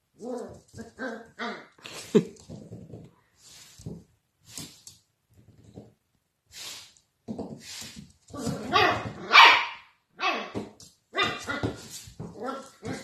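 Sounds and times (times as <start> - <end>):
puppy barking: 8.6 - 11.8.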